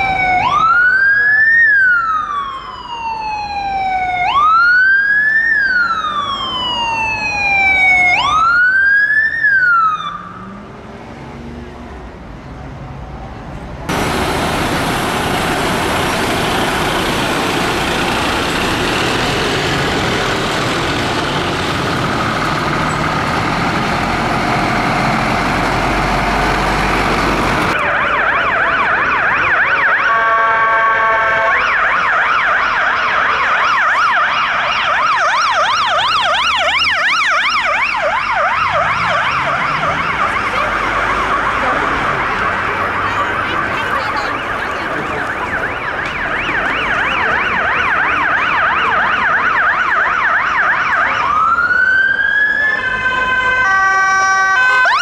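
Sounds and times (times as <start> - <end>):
fast yelp siren: 0.0 - 10.4, 27.7 - 55.0
fire engine siren: 0.0 - 11.8, 13.9 - 55.0
loud traffic noise: 9.5 - 55.0.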